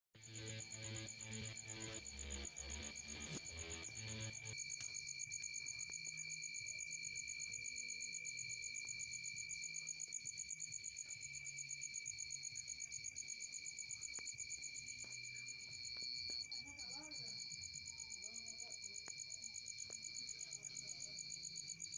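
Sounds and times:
background music: 0:00.2 - 0:05.3.

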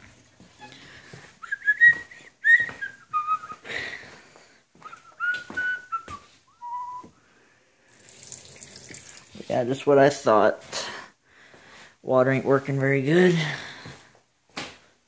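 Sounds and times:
person whistling a tune: 0:01.4 - 0:03.9, 0:04.8 - 0:07.2.

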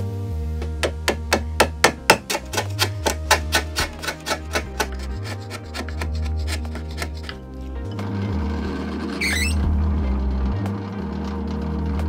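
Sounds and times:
background music: 0:00.0 - 0:12.0
chisel scraping wood: 0:00.6 - 0:09.7.

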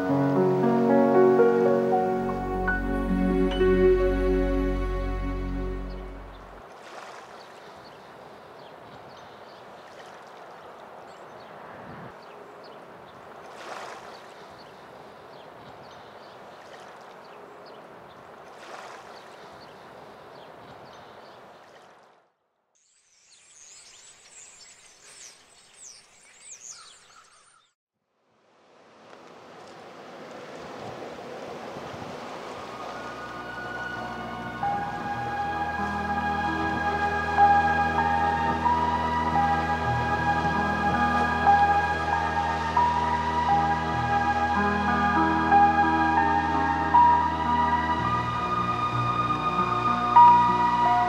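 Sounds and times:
small waves lapping against rocks: 0:06.6 - 0:11.3, 0:13.1 - 0:22.2.

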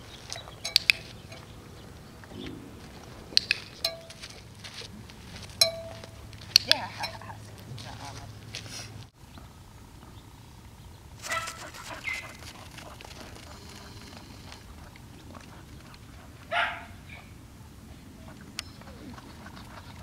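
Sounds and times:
dog barking: 0:11.2 - 0:17.4.

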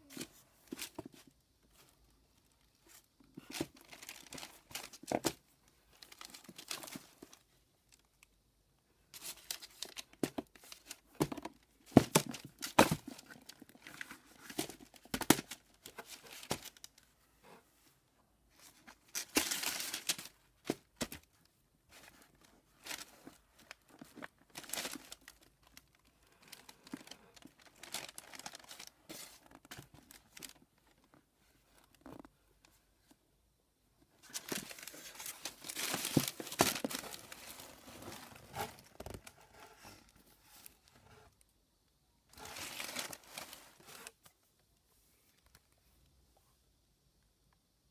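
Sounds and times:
tissue paper rustling: 0:26.4 - 0:30.6, 0:34.2 - 0:40.9, 0:42.3 - 0:44.2.

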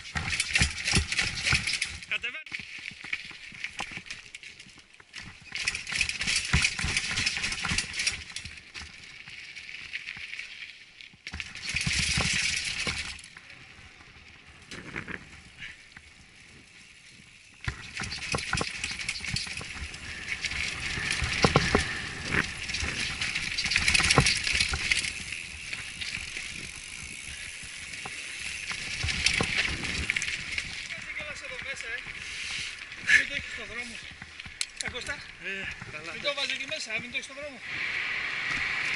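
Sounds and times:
bike rattling over bumps: 0:00.0 - 0:37.6
rough tyre rushing noise: 0:17.5 - 0:34.1, 0:36.7 - 0:38.9.

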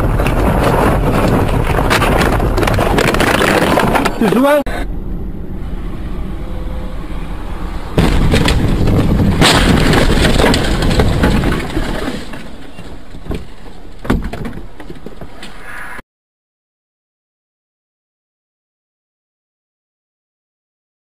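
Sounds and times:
crunching scraping impacts: 0:00.0 - 0:15.8
car collision crash: 0:07.9 - 0:14.6
knocks: 0:13.2 - 0:15.6.

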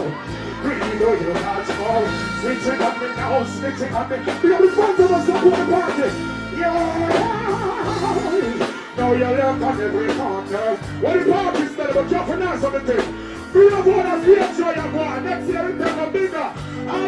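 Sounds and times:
bass-heavy reggae backing rhythm: 0:00.0 - 0:17.0
man singing into a microphone: 0:00.0 - 0:17.0.

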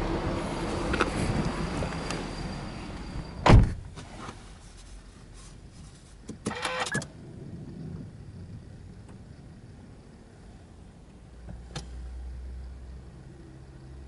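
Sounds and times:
car door shutting: 0:03.4 - 0:04.4.

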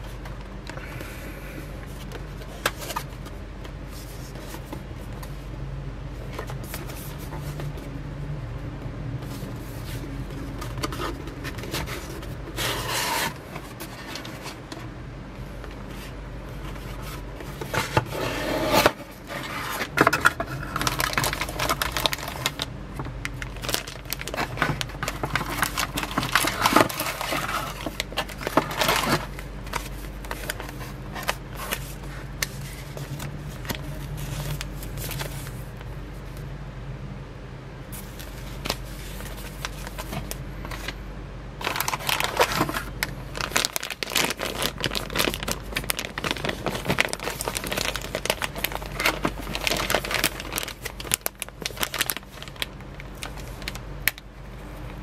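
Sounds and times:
cardboard packaging scraping: 0:09.2 - 0:14.8, 0:15.8 - 0:22.7, 0:23.4 - 0:35.9, 0:37.9 - 0:41.0, 0:41.6 - 0:53.8
paper leaflets rustling: 0:09.2 - 0:36.4, 0:37.9 - 0:41.0, 0:41.6 - 0:54.1.

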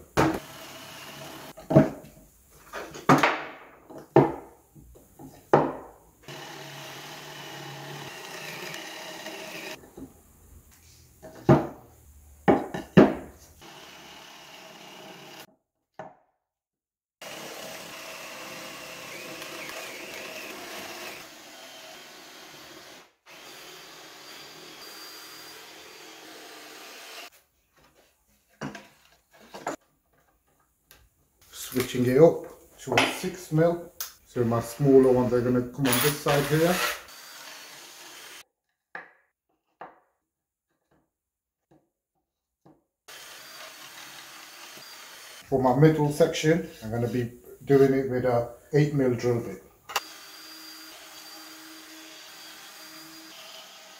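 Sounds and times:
cordless drill boring wood: 0:00.4 - 0:01.6, 0:06.2 - 0:09.8, 0:13.6 - 0:15.5, 0:17.2 - 0:27.3, 0:34.7 - 0:38.4, 0:43.1 - 0:45.5, 0:49.9 - 0:53.9
knocks of wood and tools: 0:01.6 - 0:06.0, 0:11.2 - 0:11.8.

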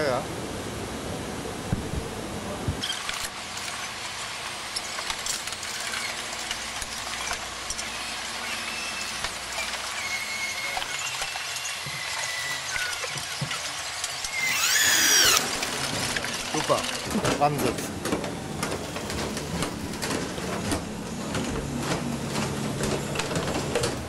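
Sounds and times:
pneumatic drill hissing: 0:02.8 - 0:17.2
squealing whine: 0:07.0 - 0:13.6, 0:14.2 - 0:16.2.

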